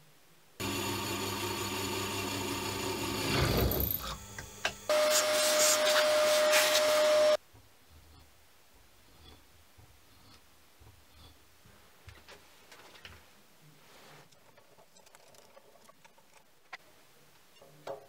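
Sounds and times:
drill press drilling metal: 0.6s - 5.3s.

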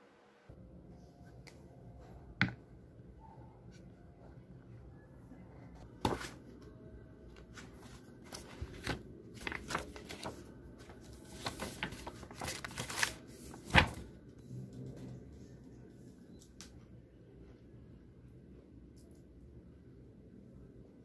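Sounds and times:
paper rustling and sliding: 7.5s - 14.2s.

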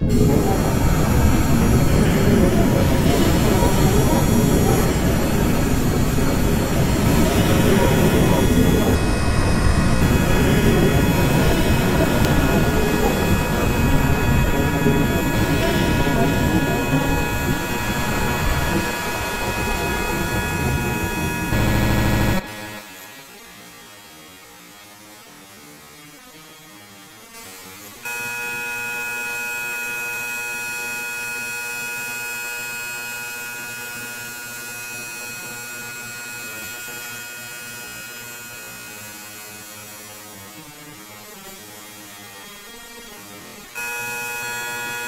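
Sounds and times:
electronic drone music: 0.0s - 23.5s.

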